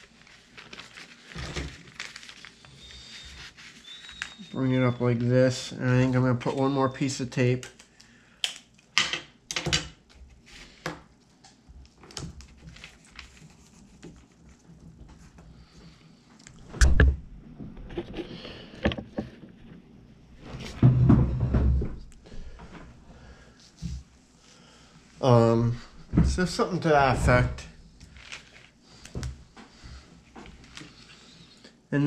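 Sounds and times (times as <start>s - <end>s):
paper rustling: 0.0s - 4.5s, 11.9s - 15.3s, 28.0s - 31.3s.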